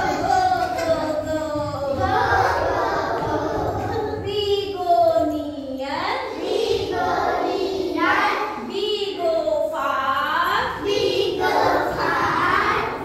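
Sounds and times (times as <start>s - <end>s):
children and woman singing: 0.0s - 13.0s.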